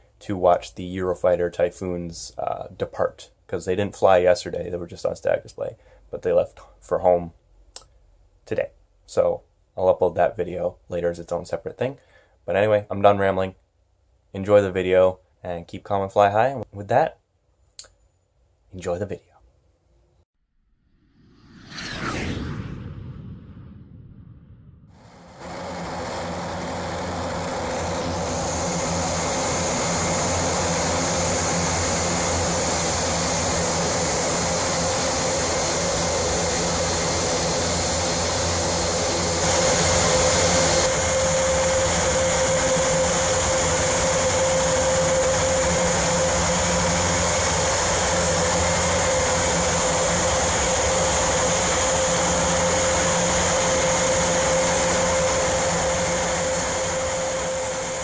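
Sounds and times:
turboprop engines droning: 20.5s - 58.0s.

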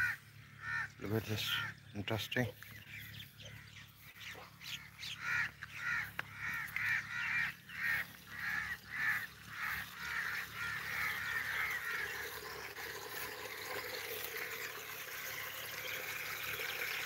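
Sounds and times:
bird calling: 0.0s - 12.9s.

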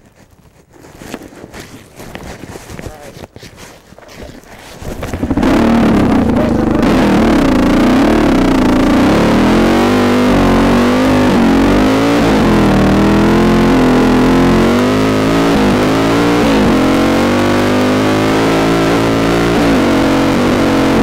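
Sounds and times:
dirt bike engine revving: 4.9s - 21.0s.

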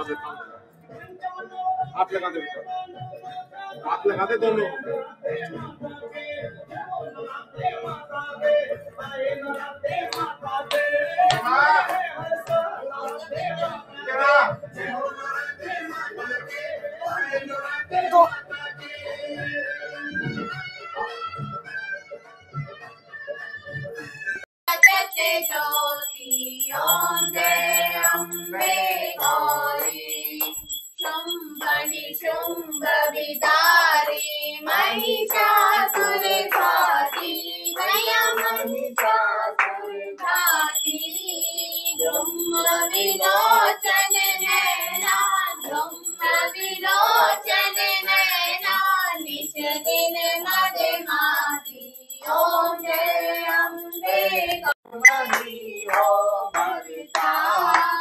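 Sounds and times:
people singing a hymn: 2.8s - 21.5s, 24.8s - 58.0s
rhythmic hand-clapping: 9.4s - 13.4s, 24.7s - 58.0s
small bell ringing: 24.7s - 58.0s.

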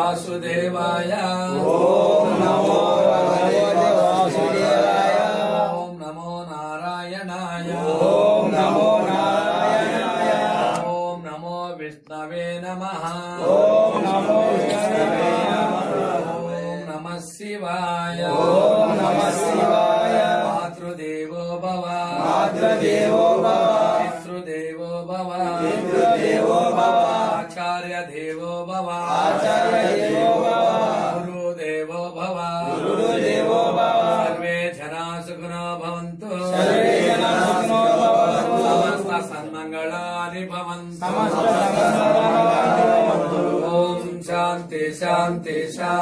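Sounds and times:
voices chanting: 0.0s - 6.0s, 7.5s - 11.2s, 13.1s - 17.1s, 18.2s - 20.9s, 21.9s - 24.4s, 25.3s - 27.6s, 29.0s - 31.4s, 32.6s - 34.6s, 36.3s - 39.5s, 41.0s - 46.0s.

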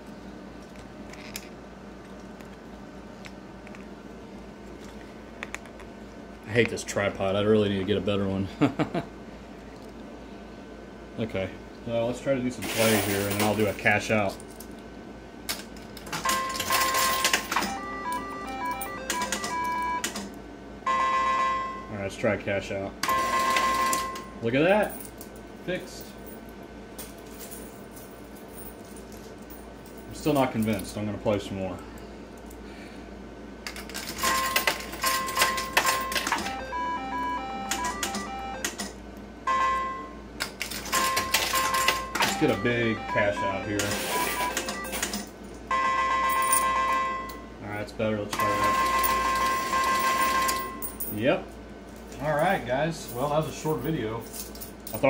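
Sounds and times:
slot machine reels clicking: 16.0s - 20.3s, 23.0s - 24.3s, 33.9s - 38.9s, 39.8s - 45.3s, 48.3s - 50.9s
beeping tune: 16.4s - 20.1s, 34.4s - 38.8s, 39.5s - 40.2s, 41.0s - 45.0s
electronic beeps: 41.0s - 45.0s.

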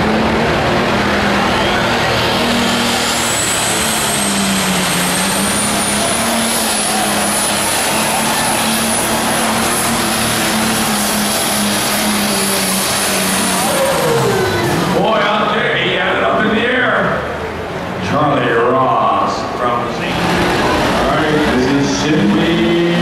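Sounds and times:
tractor diesel engine under load: 0.0s - 23.0s.

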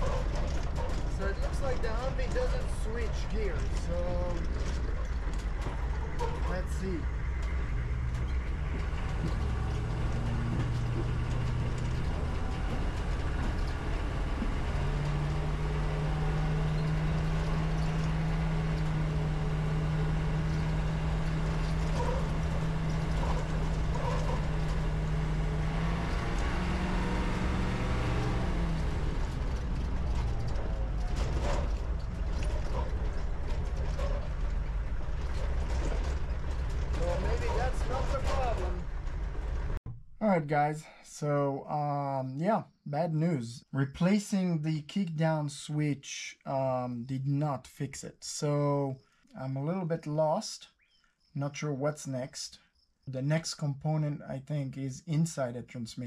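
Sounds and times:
diesel engine revving: 0.0s - 39.8s.

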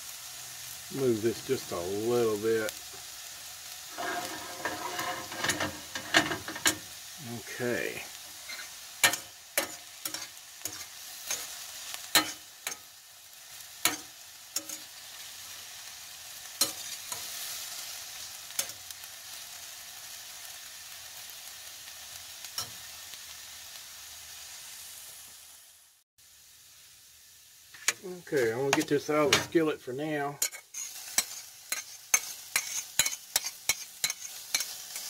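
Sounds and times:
vegetables sizzling in a pan: 0.0s - 35.0s
metal spatula scraping a pan: 3.8s - 7.2s, 8.2s - 12.9s, 13.8s - 15.0s, 27.7s - 29.6s, 30.4s - 35.0s.

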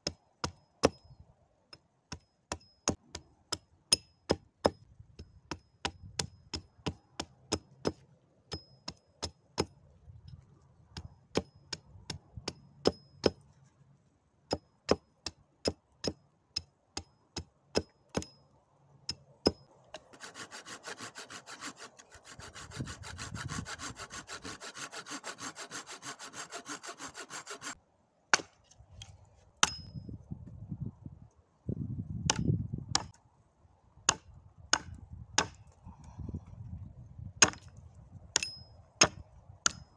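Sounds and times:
dull hatchet chops: 0.0s - 1.1s, 5.5s - 9.8s, 11.0s - 13.4s, 14.5s - 18.4s, 19.1s - 29.9s, 32.2s - 33.2s, 34.1s - 35.8s, 37.4s - 37.8s, 38.4s - 39.9s
wood grating: 20.0s - 27.8s.

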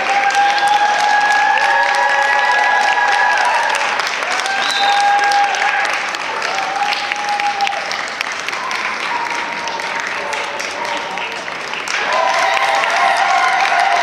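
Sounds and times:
long held whoops: 0.0s - 7.9s
audience applauding: 0.0s - 14.0s.

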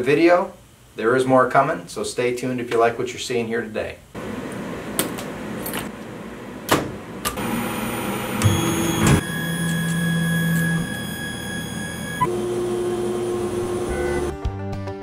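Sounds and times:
electrical hum: 4.2s - 14.4s
stepper motors whining: 7.4s - 14.4s.

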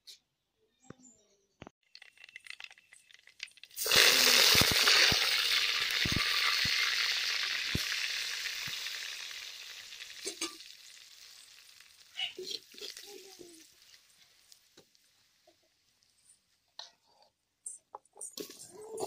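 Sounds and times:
oil sizzling in a pot: 1.9s - 16.4s.

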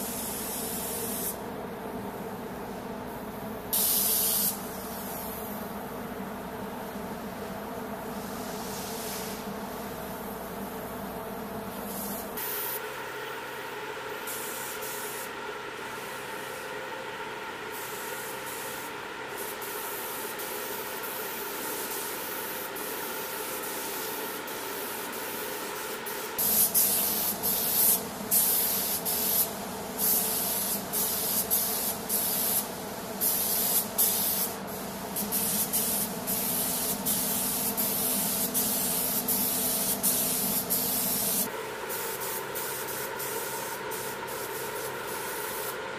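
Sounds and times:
paint spray gun hissing: 0.0s - 1.4s, 3.7s - 5.6s, 8.2s - 9.5s, 11.7s - 12.9s, 14.3s - 15.3s, 17.7s - 45.8s
steady hum: 0.0s - 45.9s.

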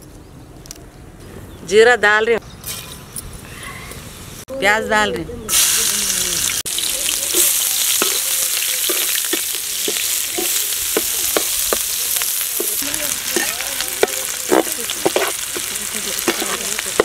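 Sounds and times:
onions sizzling in hot oil: 5.5s - 17.0s
metal spoon scraping a pan: 7.3s - 17.0s.

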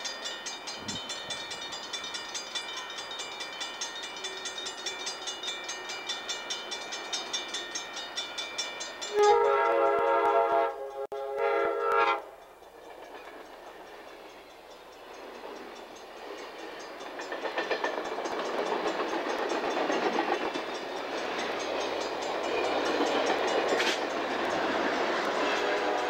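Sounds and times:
train wheels on rails: 0.0s - 26.0s
train air horn: 9.1s - 12.4s, 25.3s - 26.0s.

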